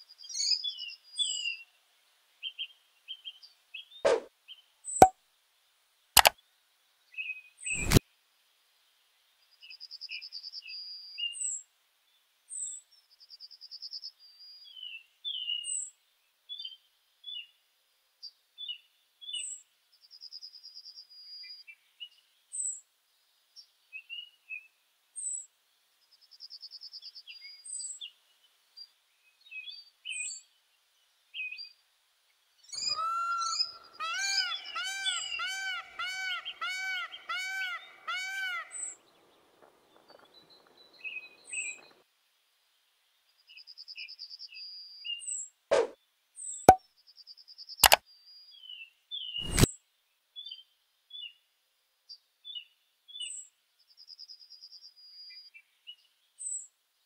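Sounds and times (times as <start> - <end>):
small songbirds chirping: 0.0 - 5.1, 8.9 - 42.0, 42.6 - 57.0
peacock call: 32.8 - 39.0.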